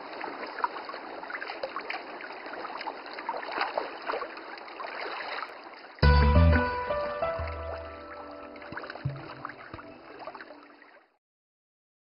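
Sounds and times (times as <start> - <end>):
trickling babbling water: 0.0 - 6.0, 7.5 - 11.2.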